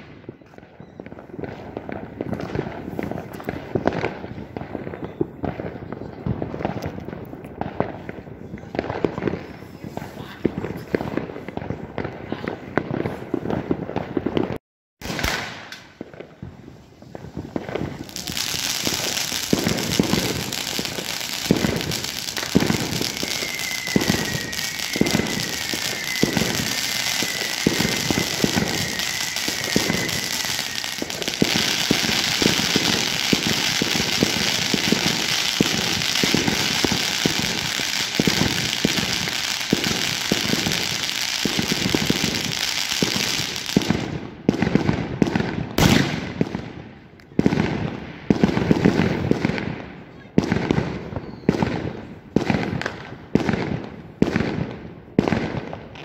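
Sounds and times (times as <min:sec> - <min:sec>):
firework whistles: 0:00.0 - 0:03.5, 0:15.0 - 0:44.0, 0:50.7 - 0:52.9
fireworks crackling and banging: 0:00.0 - 0:56.0.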